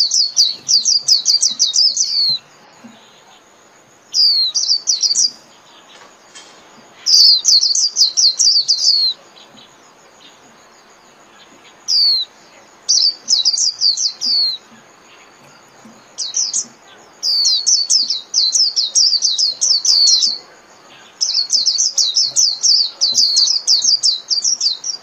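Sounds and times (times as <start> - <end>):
bird chattering song: 0.0 - 25.0.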